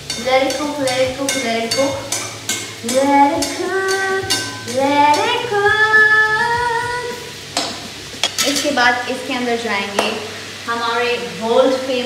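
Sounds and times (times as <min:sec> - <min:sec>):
metal spatula scraping in a wok: 0:00.0 - 0:05.6, 0:08.2 - 0:09.0
light sizzle: 0:00.0 - 0:12.0.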